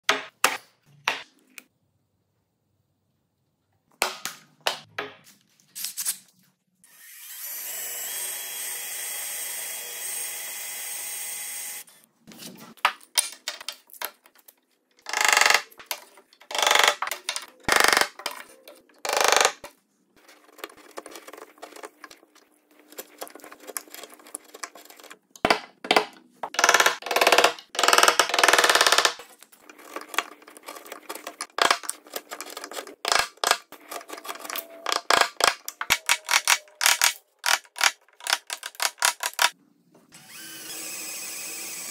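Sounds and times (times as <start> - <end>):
cordless drill boring into wood: 40.2 - 41.9.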